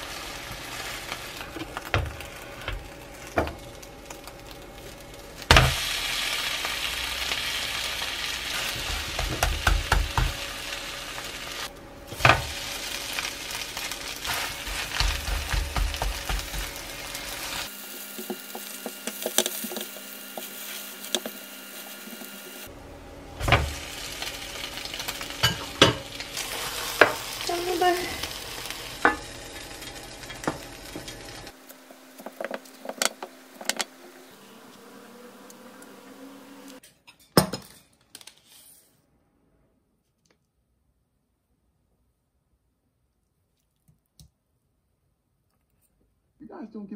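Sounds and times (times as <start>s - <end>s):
omelette sizzling in a pan: 0.0s - 22.7s, 23.4s - 36.8s.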